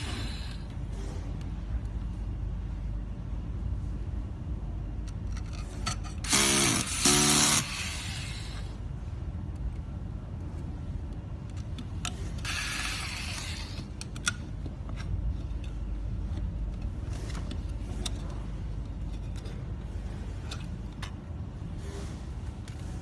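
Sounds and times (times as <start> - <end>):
low workshop hum: 0.0 - 23.0
tool and parts clicking: 11.4 - 19.6.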